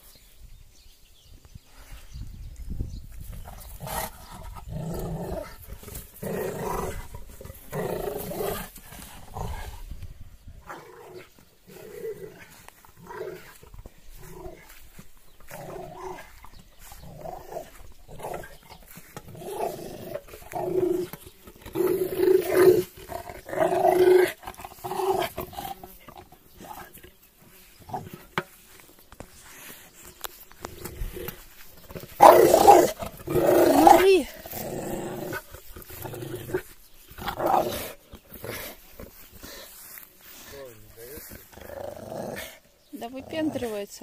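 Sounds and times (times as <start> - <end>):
dog growling: 3.7 - 10.0, 10.7 - 27.0, 30.6 - 39.7, 41.2 - 42.6.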